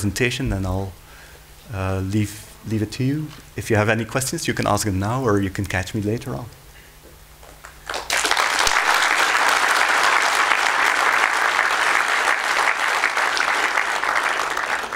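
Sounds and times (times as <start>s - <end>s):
audience applauding: 7.6s - 14.9s.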